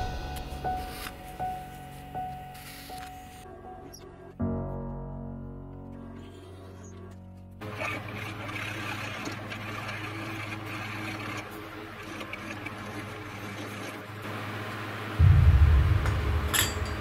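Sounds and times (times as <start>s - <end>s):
chisel scraping wood: 6.1s - 14.2s
steady low hum: 14.4s - 17.0s
loud low rumble: 15.2s - 17.0s.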